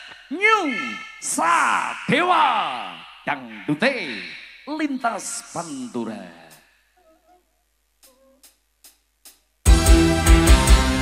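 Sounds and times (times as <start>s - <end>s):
band music with heavy bass: 9.6s - 11.0s.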